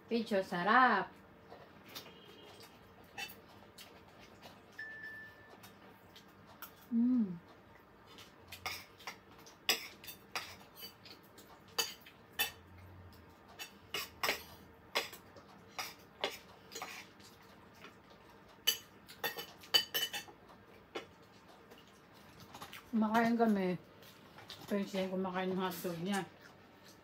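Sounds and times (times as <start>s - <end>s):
cutlery clinking on a plate: 11.8s - 12.6s, 13.6s - 15.2s, 18.7s - 20.4s.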